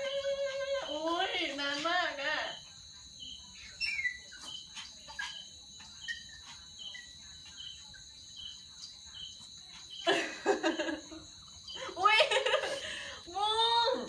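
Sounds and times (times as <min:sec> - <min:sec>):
crickets and insects trilling: 0:00.0 - 0:14.0
insect chirps: 0:00.0 - 0:14.0
woman laughing: 0:10.0 - 0:13.7.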